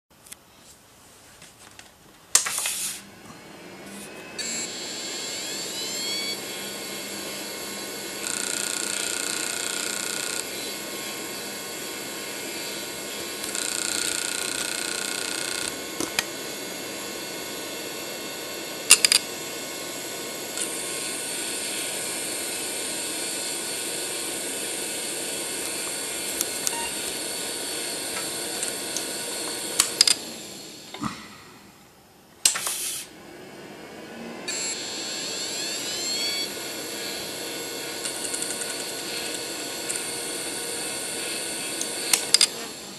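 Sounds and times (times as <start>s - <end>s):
hard drive buzzing: 2.4s - 42.9s
hard drive spinning whine: 2.6s - 42.9s
sharp clicks: 18.9s - 19.2s, 28.1s - 30.2s, 38.0s - 40.1s, 41.8s - 42.5s.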